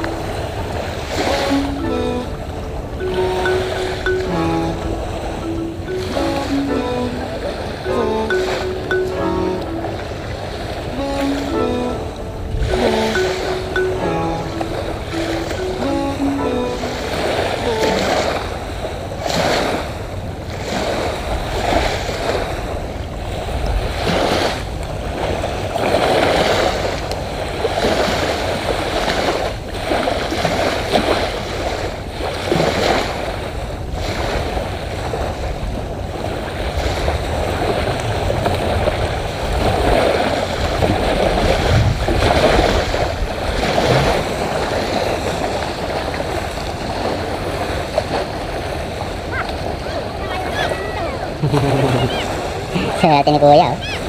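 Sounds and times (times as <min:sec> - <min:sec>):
waves lapping on beach: 0:00.0 - 0:54.0
wind rumbling on microphone: 0:12.2 - 0:13.1, 0:16.9 - 0:54.0.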